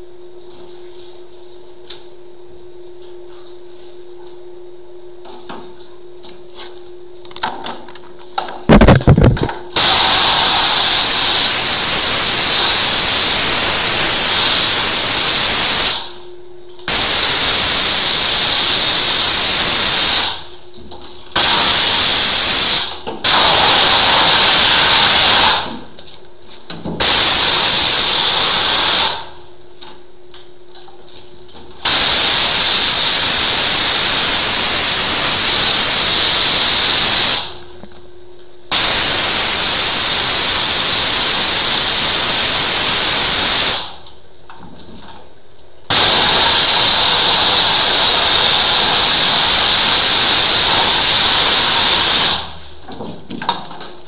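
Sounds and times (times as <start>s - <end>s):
pressure washer spraying: 8.7s - 16.2s, 16.9s - 20.5s, 21.3s - 25.8s, 27.0s - 29.4s, 31.8s - 37.6s, 38.7s - 44.0s, 45.9s - 52.8s.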